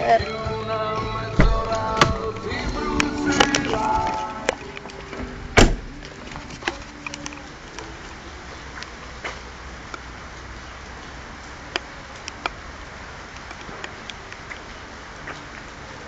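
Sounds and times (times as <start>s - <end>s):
rain hissing: 0.8s - 16.0s
loud knock: 1.4s - 2.3s
raindrops ticking on hard surfaces: 2.3s - 16.0s.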